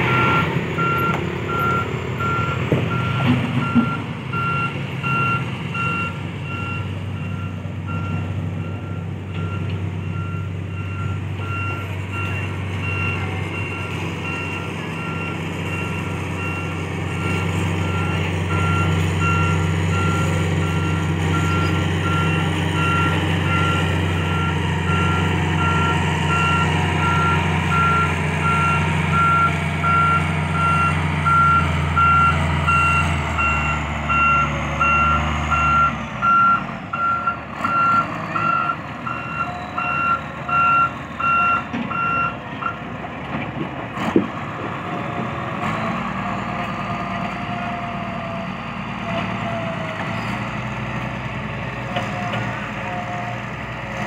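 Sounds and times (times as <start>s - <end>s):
truck engine rumble: 0.0s - 54.0s
reversing alarm beeping: 0.1s - 42.8s.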